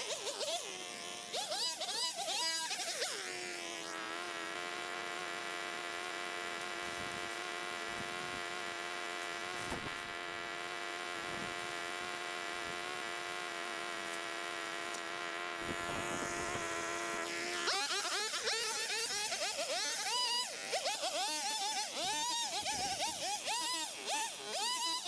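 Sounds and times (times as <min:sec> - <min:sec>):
gas trimmer engine revving: 0:00.0 - 0:25.0.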